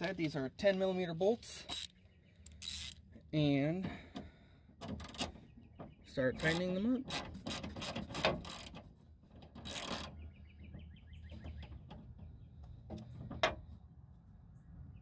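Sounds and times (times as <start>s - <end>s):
ratchet wrench pawl clicks: 2.5s - 3.0s, 9.6s - 10.1s.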